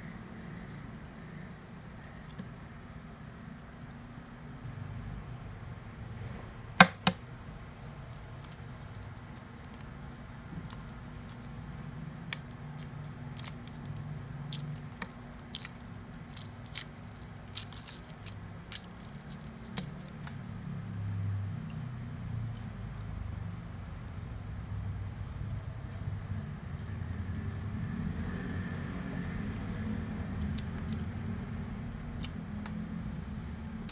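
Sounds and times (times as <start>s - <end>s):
eggshell crackling as peeled: 8.0s - 20.8s.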